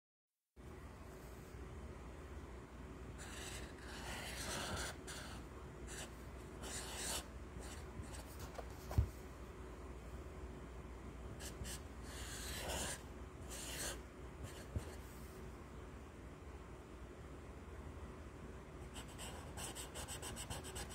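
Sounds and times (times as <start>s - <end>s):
marker rubbing on paper: 3.2s - 9.0s, 11.4s - 15.0s, 19.0s - 20.9s.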